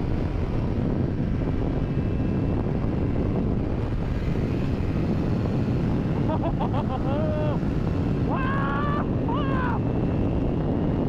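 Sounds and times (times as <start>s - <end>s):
road noise: 0.0s - 11.0s
wind rush on microphone: 0.0s - 11.0s.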